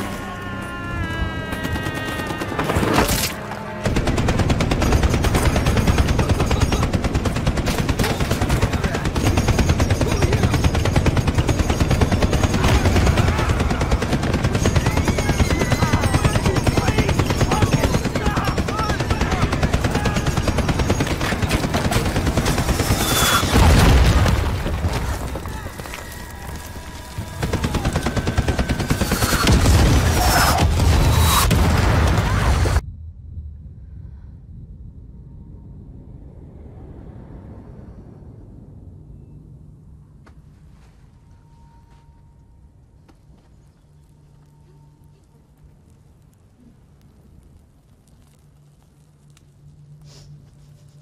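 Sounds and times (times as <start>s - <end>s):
machine-gun and rifle fire: 3.8s - 24.2s, 27.2s - 32.8s
explosions: 11.4s - 33.7s.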